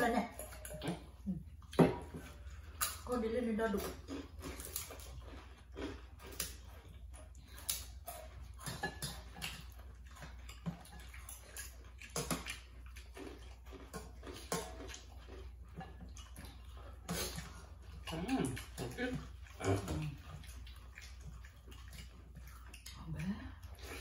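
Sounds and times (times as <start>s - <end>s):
wet chewing and slurping: 0.0s - 24.0s
spoon clinking on metal bowl: 0.3s - 1.0s.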